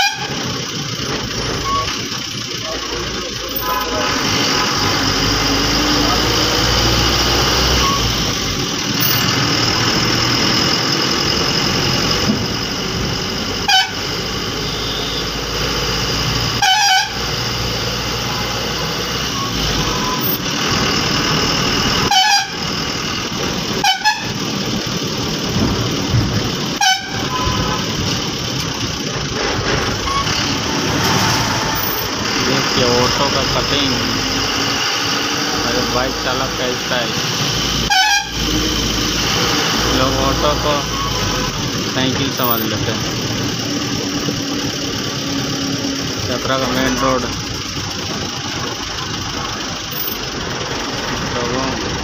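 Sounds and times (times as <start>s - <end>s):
horn blasts: 0.0s - 0.4s, 13.6s - 15.4s, 16.5s - 17.3s, 22.0s - 22.6s, 23.8s - 24.4s, 26.8s - 27.9s, 37.9s - 38.6s
bus diesel engine running: 0.0s - 52.0s.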